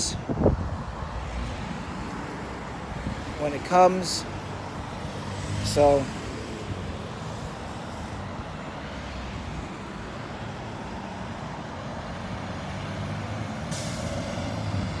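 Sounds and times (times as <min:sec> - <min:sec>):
bus engine running: 0:09.4 - 0:15.0.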